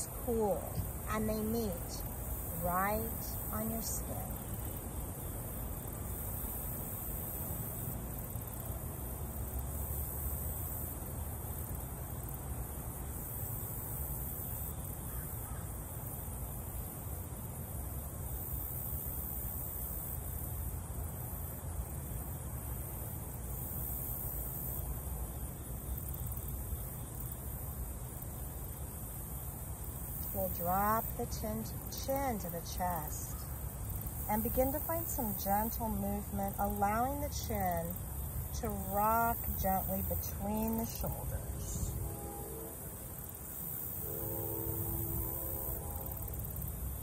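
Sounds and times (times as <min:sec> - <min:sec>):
high-pitched hiss of creek: 0:41.8 - 0:47.0.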